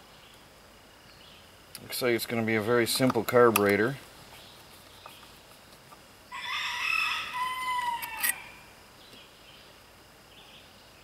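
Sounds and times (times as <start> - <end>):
rooster crowing: 6.3 - 8.7.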